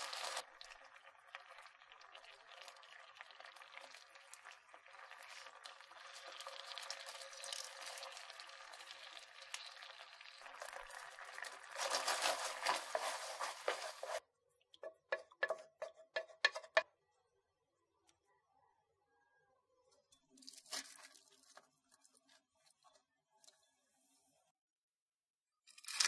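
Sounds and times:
sauce bubbling and sizzling in pan: 0:00.0 - 0:14.2, 0:14.8 - 0:16.8
sauce dripping into bowl: 0:00.4 - 0:11.8.

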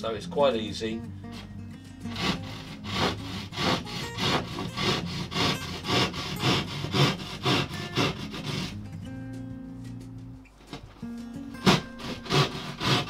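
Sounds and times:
hand saw rasping through plasterboard: 0:02.1 - 0:08.8, 0:11.6 - 0:13.0.

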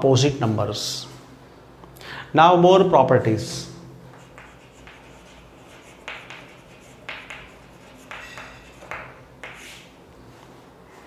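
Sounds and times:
chalk scratching on chalkboard: 0:04.1 - 0:10.0.

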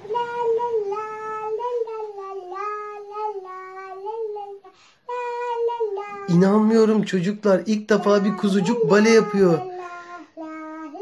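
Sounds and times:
girl singing wordless tune: 0:00.0 - 0:07.0, 0:07.7 - 0:11.0.

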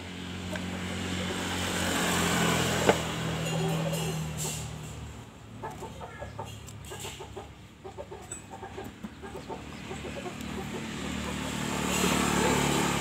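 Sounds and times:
chickens clucking: 0:02.8 - 0:04.9, 0:05.5 - 0:12.7.

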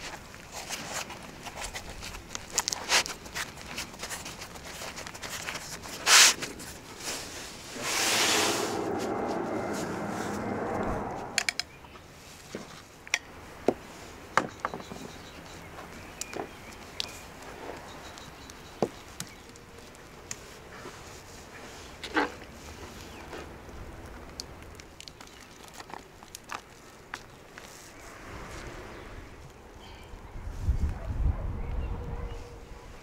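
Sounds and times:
flatbread rustling and crinkling: 0:00.0 - 0:08.1, 0:15.7 - 0:28.8
steady rush of noise: 0:06.2 - 0:12.3.

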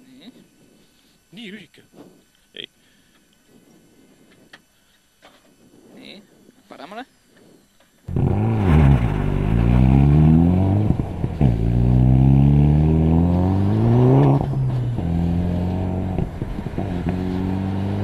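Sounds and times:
rally car engine revving hard: 0:08.1 - 0:18.0.

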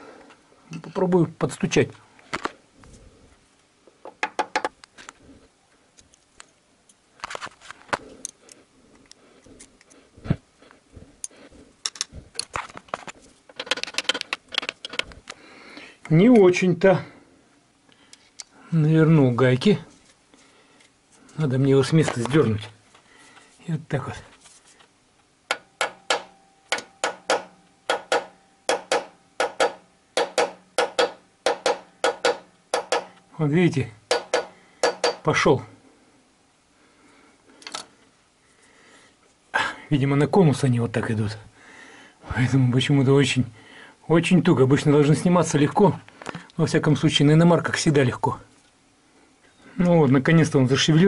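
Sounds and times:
hard metal knock: 0:25.5 - 0:33.2, 0:34.1 - 0:35.2
metal-on-metal tapping: 0:25.5 - 0:33.2, 0:34.1 - 0:35.3.

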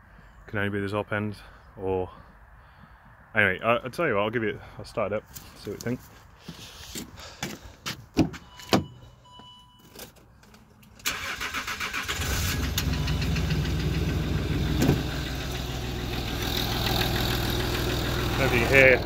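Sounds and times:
diesel engine cranking and idling: 0:10.9 - 0:19.0.

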